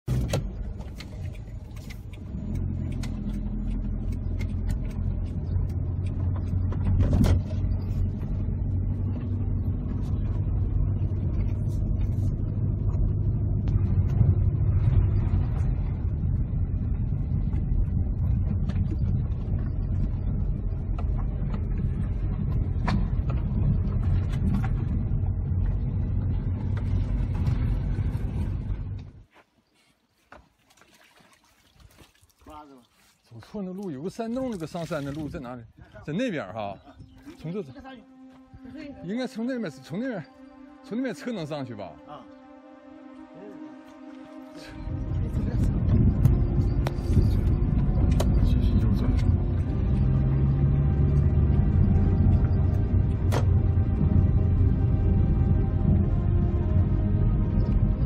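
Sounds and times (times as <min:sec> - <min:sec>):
car engine and tyre rumble: 0:00.0 - 0:29.4, 0:43.9 - 0:58.0.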